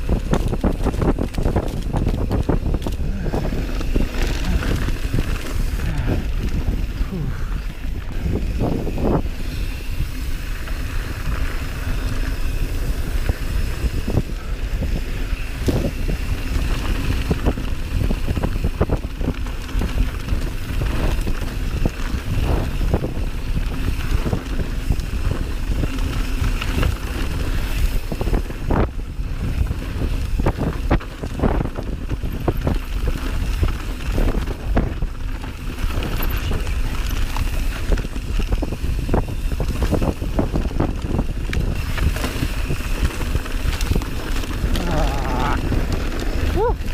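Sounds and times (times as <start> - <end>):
tyre rumble on dirt: 0.0 - 9.2
bike knocks and rattles: 0.0 - 46.9
wind rushing over microphone: 0.0 - 46.9.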